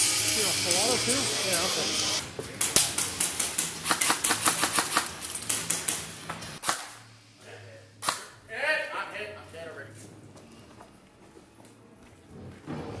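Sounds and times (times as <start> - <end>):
airsoft rifles firing: 2.6 - 6.0.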